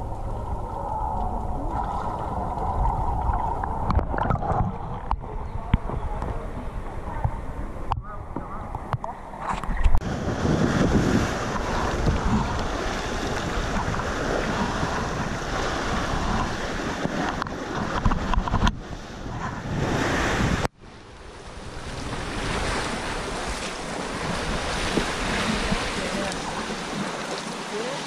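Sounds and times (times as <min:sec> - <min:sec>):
wind buffeting microphone: 0:00.0 - 0:27.2
waves washing against rocks: 0:09.9 - 0:28.0.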